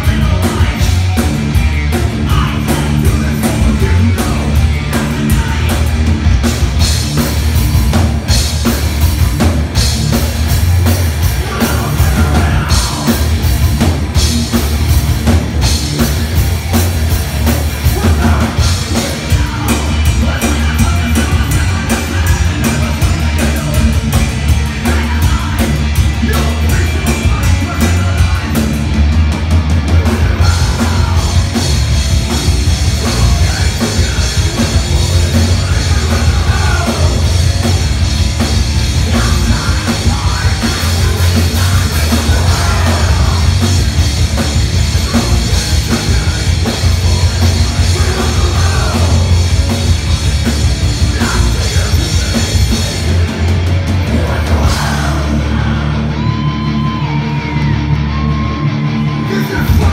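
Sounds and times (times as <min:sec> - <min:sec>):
pounding drums: 0:00.0 - 0:55.7
bass guitar: 0:00.0 - 0:59.9
distorted electric guitar: 0:00.0 - 0:59.9
person singing: 0:11.2 - 0:13.4, 0:29.8 - 0:31.8, 0:32.9 - 0:37.8, 0:39.0 - 0:44.0, 0:44.8 - 0:49.8, 0:50.9 - 0:59.9.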